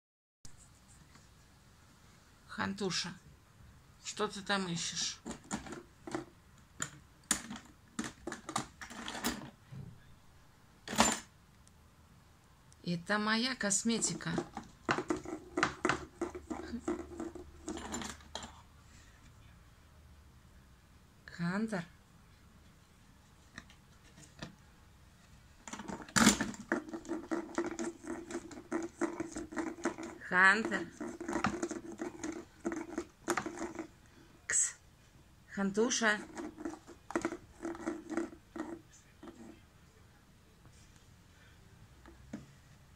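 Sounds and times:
small items knocking and rattling: 5.2 - 6.3, 7.3 - 9.6, 14.0 - 18.5, 25.6 - 33.9, 36.2 - 39.4
cat scratching in a drawer: 14.0 - 18.6, 25.7 - 34.0, 36.1 - 39.6
clicks and scrapes: 25.7 - 33.9.

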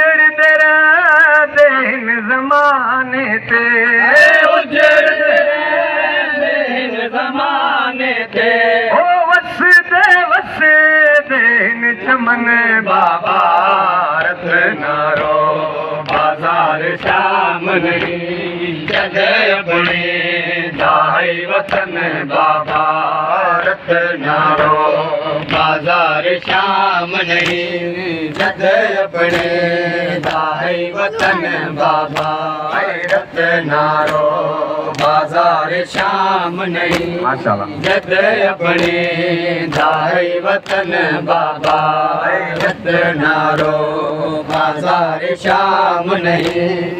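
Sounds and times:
man chanting through a microphone: 0.0 - 40.5
rhythmic thuds: 12.1 - 46.9.

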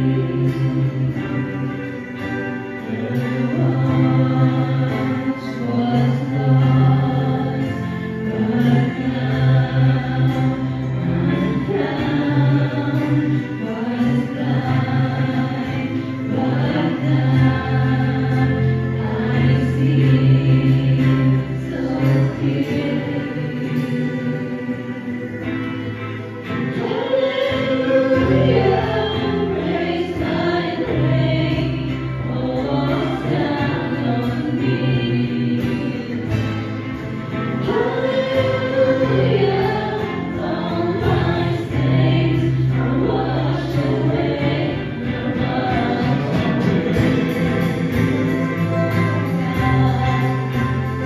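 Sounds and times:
acoustic guitar: 0.0 - 51.0
women and men singing hymn: 0.0 - 51.0.

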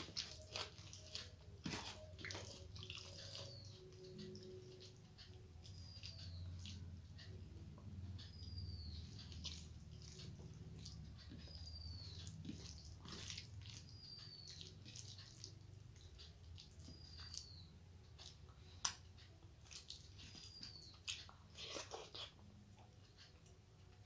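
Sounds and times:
fingers squishing food: 0.0 - 24.0
bird chirping: 2.0 - 18.8, 20.1 - 21.8.

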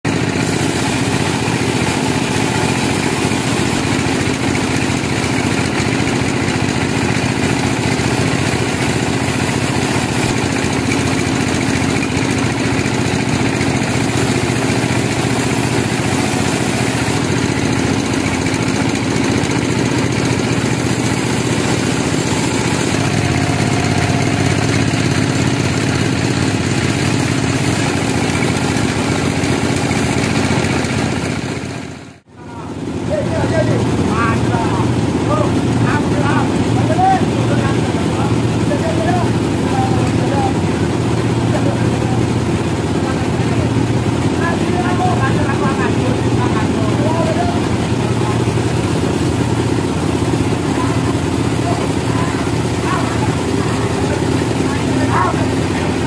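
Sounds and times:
band saw cutting log: 0.1 - 32.0, 45.5 - 56.0.

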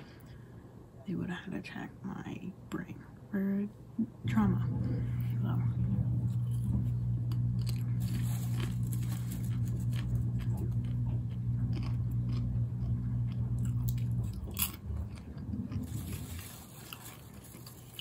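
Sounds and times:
washing machine humming: 3.3 - 18.0
popcorn chewing and crunching: 6.3 - 18.0.

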